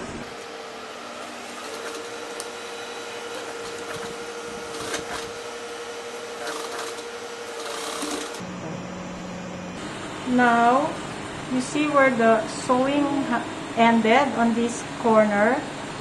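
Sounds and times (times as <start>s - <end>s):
sewing machine stitching: 1.2s - 5.5s, 6.2s - 8.4s.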